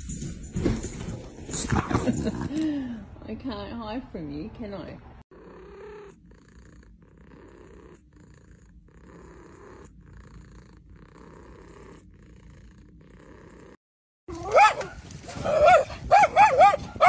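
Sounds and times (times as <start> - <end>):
cat purring: 5.3 - 13.8.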